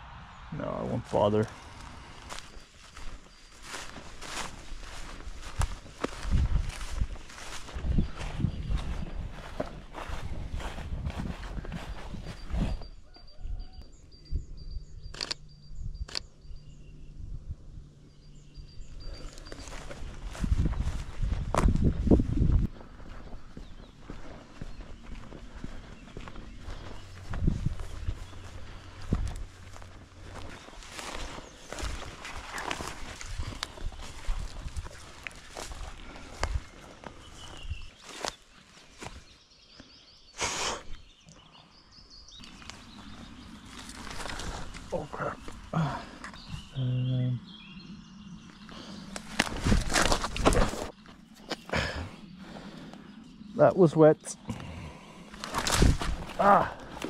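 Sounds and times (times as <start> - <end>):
small birds calling: 0.3 - 57.0
rustle of brushed vegetation: 1.1 - 13.2, 18.3 - 39.5, 42.3 - 46.7, 47.6 - 53.5, 55.2 - 57.0
footsteps on forest floor: 1.1 - 13.6, 19.0 - 40.0, 42.3 - 46.7, 47.7 - 53.1, 54.6 - 57.0
camera shutter clicks: 15.1 - 15.4
twig clicks underfoot: 42.4 - 42.9, 55.3 - 57.0.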